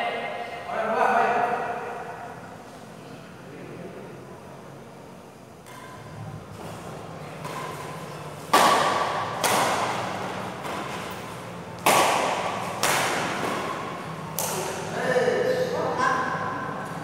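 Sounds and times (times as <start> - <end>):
racket hitting shuttlecock: 5.6 - 15.0.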